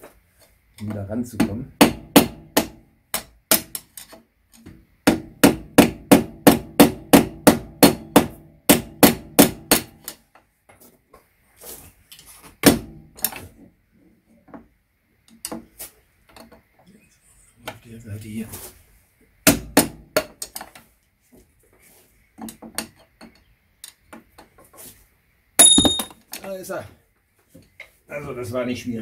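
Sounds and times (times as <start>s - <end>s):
hammer striking metal: 25.6s - 26.2s
light metal clinking: 25.6s - 26.3s.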